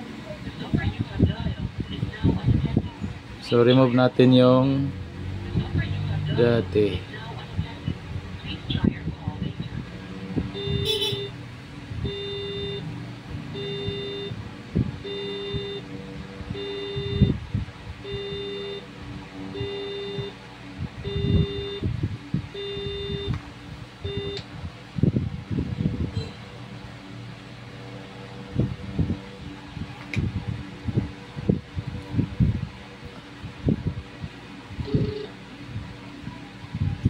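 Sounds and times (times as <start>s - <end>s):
low buzzer-like electronic beeps: 10.5s - 11.4s, 12.0s - 12.9s, 13.5s - 14.4s, 15.0s - 17.4s, 18.0s - 20.4s, 21.0s - 21.9s, 22.5s - 23.4s, 24.0s - 24.5s, 34.8s - 35.4s.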